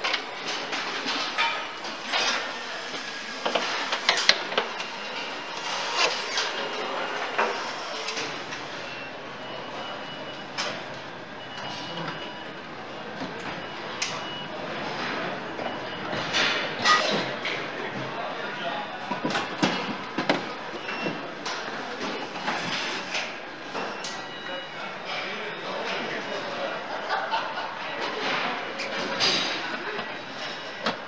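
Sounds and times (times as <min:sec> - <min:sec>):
parts and tools clanking: 0:00.0 - 0:02.6
assembly hall background noise: 0:00.0 - 0:31.0.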